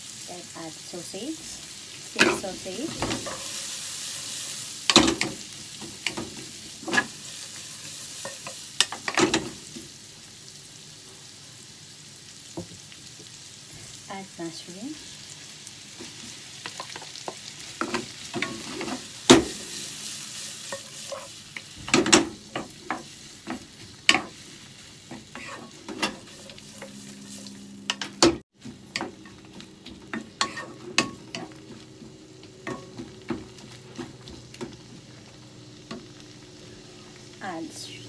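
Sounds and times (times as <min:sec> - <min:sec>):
food sizzling in a frying pan: 0:00.0 - 0:38.0
spatula knocking and scraping pan: 0:25.1 - 0:27.0, 0:27.9 - 0:35.0.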